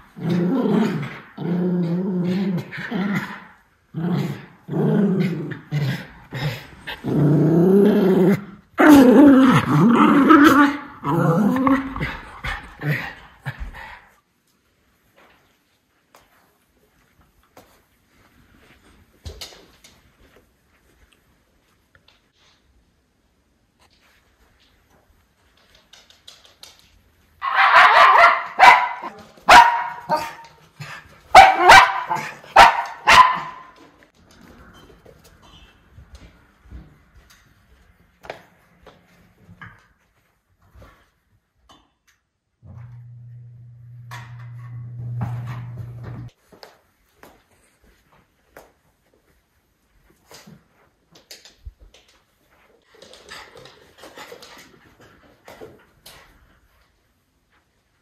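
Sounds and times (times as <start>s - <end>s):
dog play-growling: 0.0s - 14.0s
dog barking: 27.4s - 30.4s, 31.3s - 33.7s.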